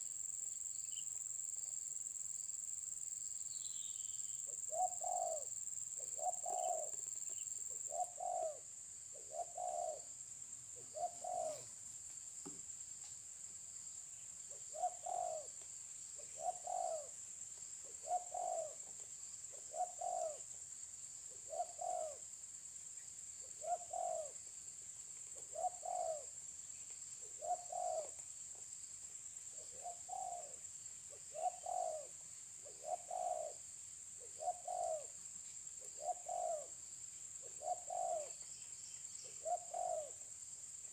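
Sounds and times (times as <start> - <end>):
dove cooing: 4.5 - 10.1, 10.8 - 11.7, 14.7 - 15.5, 16.2 - 17.2, 17.8 - 18.9, 19.5 - 20.5, 21.4 - 22.2, 23.6 - 24.4, 25.4 - 26.3, 27.3 - 28.2, 29.6 - 30.6, 31.2 - 33.6, 34.2 - 35.2, 35.8 - 36.7, 37.4 - 38.4, 39.3 - 40.2.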